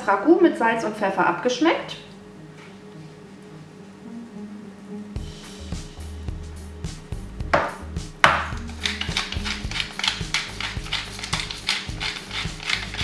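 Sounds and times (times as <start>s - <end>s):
pepper mill grinding: 8.4s - 13.0s
salt shaker shaking: 8.6s - 13.0s.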